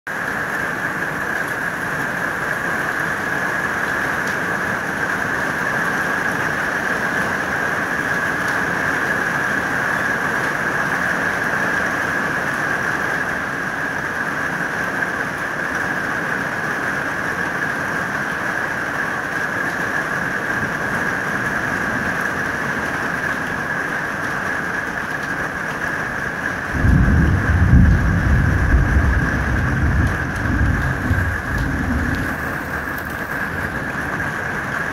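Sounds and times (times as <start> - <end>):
heavy rain hissing: 0.1 - 34.9
thunder rumbling: 26.2 - 34.9.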